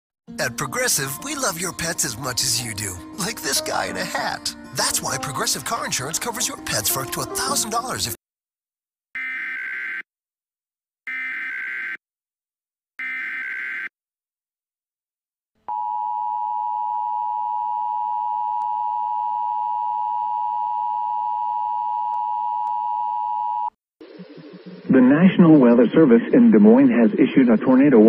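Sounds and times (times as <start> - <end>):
data burst tones: 24.0 - 27.7.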